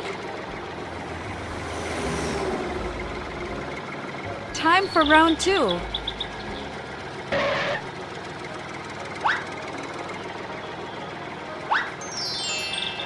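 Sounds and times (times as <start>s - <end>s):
cartoon tractor engine: 0.0s - 13.0s
quick rising sweeps: 1.1s - 3.5s.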